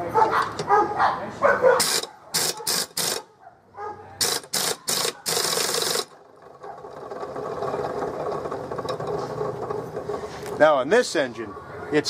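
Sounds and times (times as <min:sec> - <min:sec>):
steady mechanical hum: 0:01.6 - 0:12.0
pneumatic impact wrench bursts: 0:01.8 - 0:03.3, 0:04.2 - 0:06.2.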